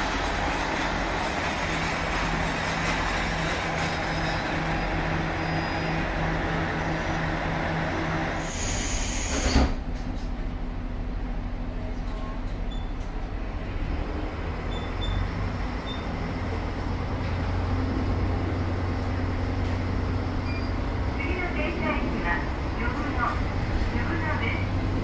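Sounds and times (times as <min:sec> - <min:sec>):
compressed air hiss: 0:08.4 - 0:09.7.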